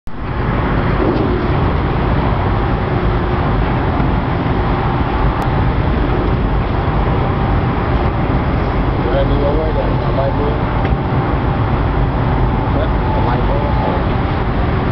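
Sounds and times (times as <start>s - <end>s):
boat diesel engines droning: 0.1s - 14.9s.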